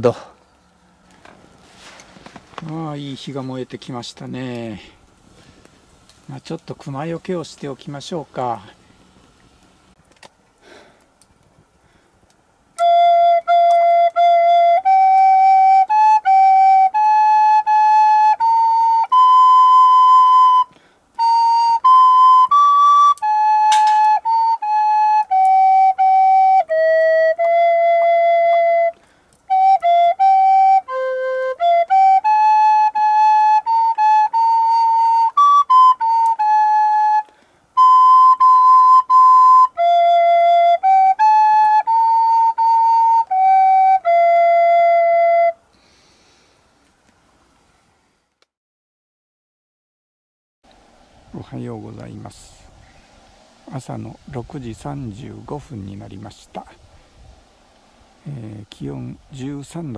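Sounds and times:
flute-like slow melody: 12.7 - 45.7.

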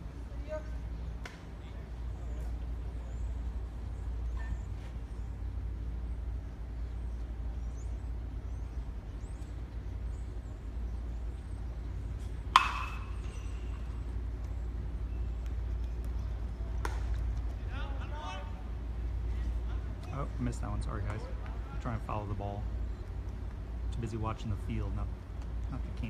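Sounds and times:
steady low rumble: 0.0 - 26.0
baseball bat hitting ball: 12.4 - 13.5.

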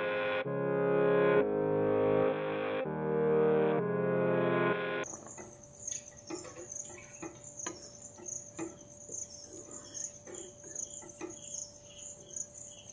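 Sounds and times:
insects chirping: 5.0 - 12.9.

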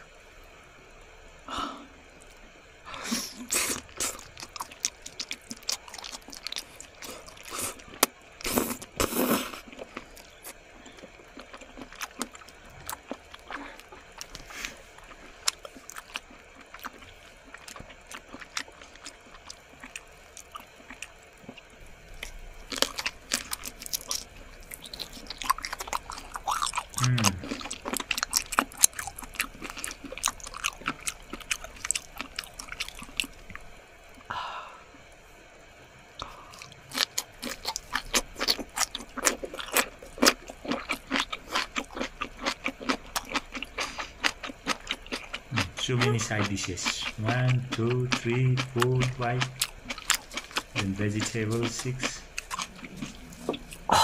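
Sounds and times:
wet smacking chewing: 36.5 - 53.9.

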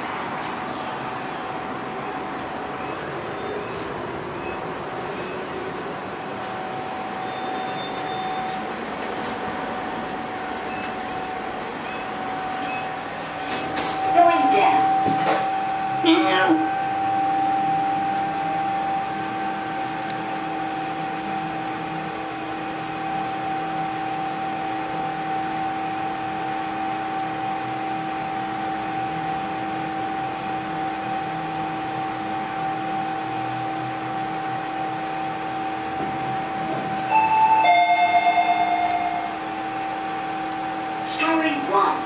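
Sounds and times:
elevator hum: 0.0 - 42.0
warbling two-note tone: 14.1 - 19.5, 37.1 - 39.4.

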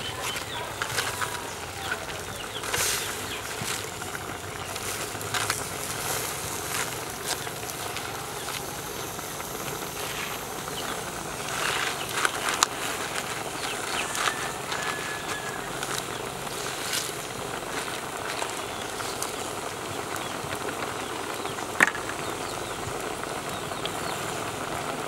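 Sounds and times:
leaves rustling in a pot: 0.0 - 25.0
steady background hiss: 0.0 - 25.0.

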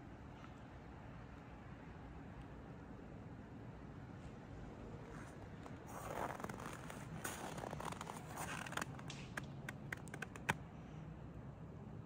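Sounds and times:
clothing rustling against phone: 5.0 - 9.1.

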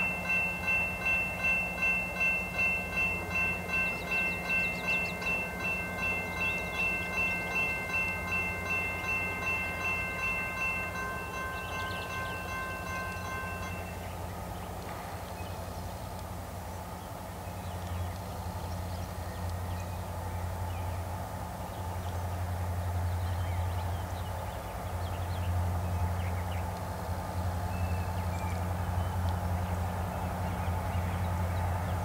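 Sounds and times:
diesel locomotive engine hum: 0.0 - 32.0
small birds chirping: 1.6 - 14.1.

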